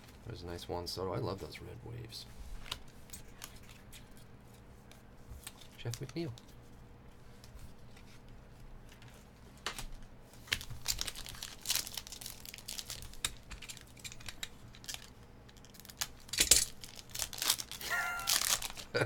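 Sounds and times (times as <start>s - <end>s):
foil wrapper crinkling and tearing: 10.3s - 19.0s.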